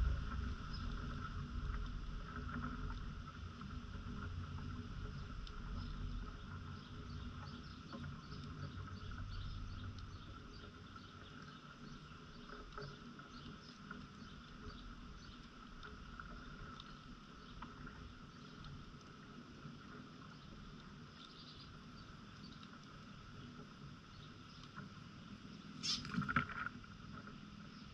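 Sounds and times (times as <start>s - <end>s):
wind rumble on microphone: 0.0s - 18.6s
faint scattered ticks and clicks: 0.0s - 27.9s
high insect-like hum: 25.6s - 27.9s.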